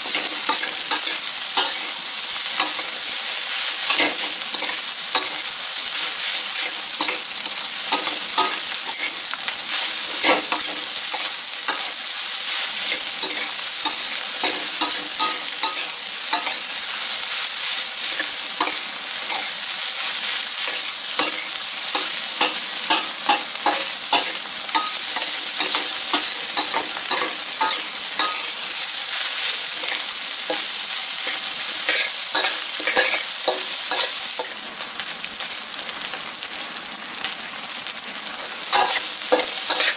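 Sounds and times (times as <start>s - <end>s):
metal spatula scraping a wok: 0.0s - 2.0s, 6.2s - 16.7s, 17.6s - 34.6s, 38.7s - 39.9s
rice sizzling in a wok: 0.0s - 39.9s.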